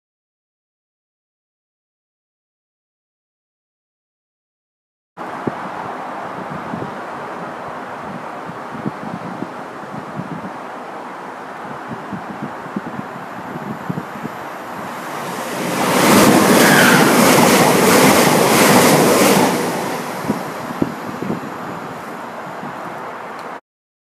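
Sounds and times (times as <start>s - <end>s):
wind: 5.2s - 23.6s
train passing at speed: 10.6s - 23.6s.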